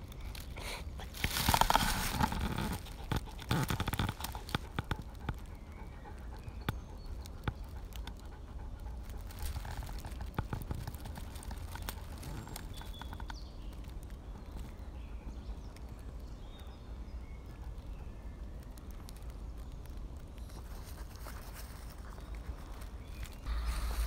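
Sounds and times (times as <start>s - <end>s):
footsteps in dry leaves: 0.2s - 5.2s, 9.0s - 13.0s, 20.6s - 24.0s.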